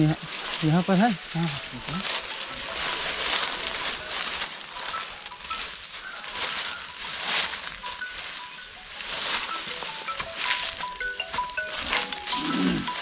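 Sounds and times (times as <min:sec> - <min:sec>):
footsteps crunching dry leaves: 0:00.0 - 0:13.0.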